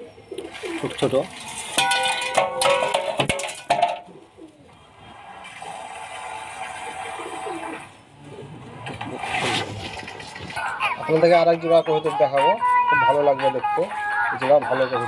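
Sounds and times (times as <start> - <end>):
pigeons cooing: 0.0 - 1.8, 4.1 - 12.4.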